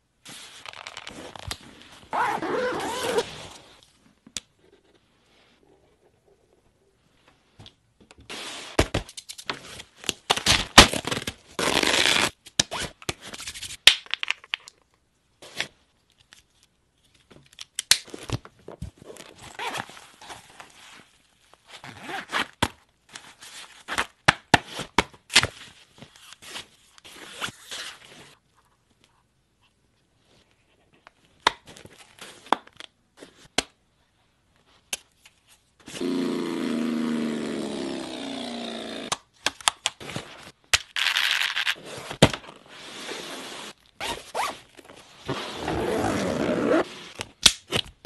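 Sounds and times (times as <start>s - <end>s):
fabric rustling and tearing: 10.9s - 12.4s.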